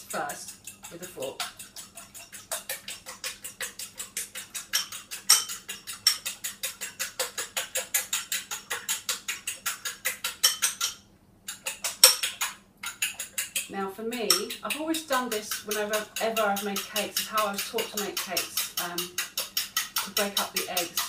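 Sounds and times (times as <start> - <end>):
fork beating eggs in bowl: 0.0 - 21.0.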